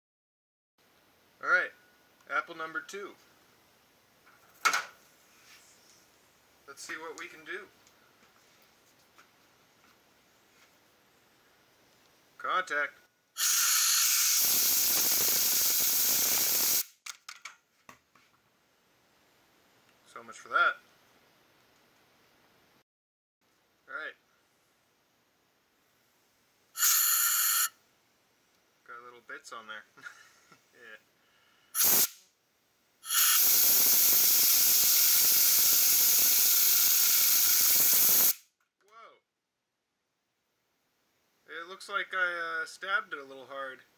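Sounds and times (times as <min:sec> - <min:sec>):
compressed air hissing: 0:13.4 - 0:16.9, 0:26.8 - 0:27.7, 0:31.7 - 0:32.2, 0:33.0 - 0:38.4.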